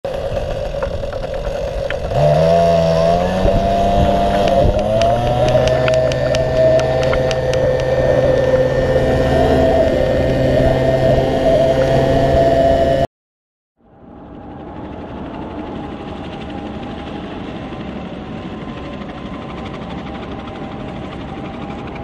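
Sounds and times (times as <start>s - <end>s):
small two-stroke engine revving: 0.1s - 13.1s.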